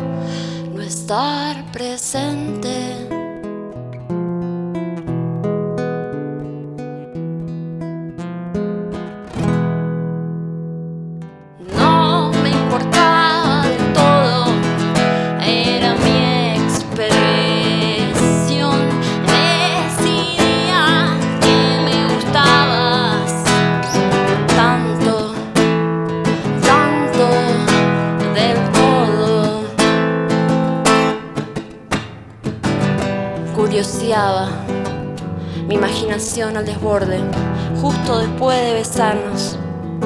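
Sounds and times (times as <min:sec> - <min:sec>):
woman singing: 0:00.0 - 0:03.3, 0:11.6 - 0:30.5, 0:33.4 - 0:40.0
acoustic guitar strumming: 0:00.0 - 0:40.0.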